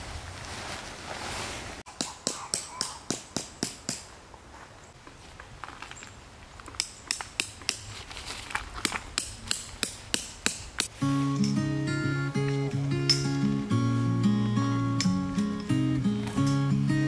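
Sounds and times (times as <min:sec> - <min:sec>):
hammer striking tent stake: 0:01.9 - 0:04.1, 0:08.8 - 0:11.6
acoustic guitar music: 0:10.9 - 0:17.0.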